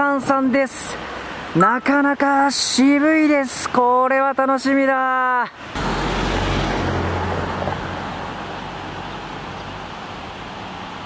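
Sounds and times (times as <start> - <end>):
rushing noise with low rumble: 5.7 - 11.0.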